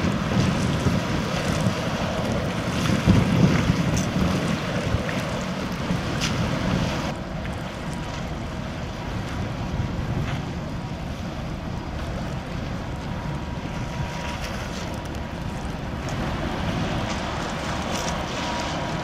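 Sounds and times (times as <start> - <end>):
choppy water: 0.0 - 19.0
wind gusting on microphone: 0.0 - 19.0.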